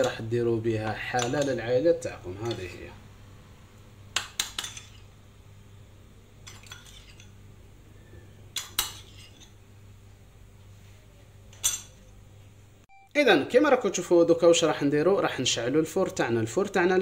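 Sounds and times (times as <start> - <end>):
metal spoon clinking on bowl: 1.2 - 1.6, 2.4 - 2.8, 4.2 - 5.1, 6.4 - 7.4, 11.5 - 12.1.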